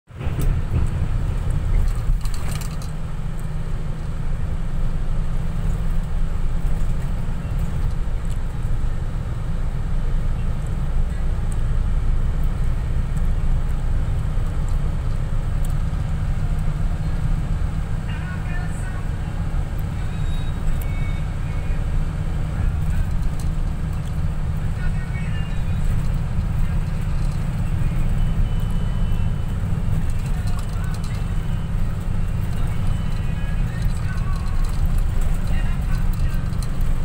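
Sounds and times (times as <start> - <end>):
vehicle cabin road rumble: 0.0 - 37.0
rattling: 32.2 - 37.0.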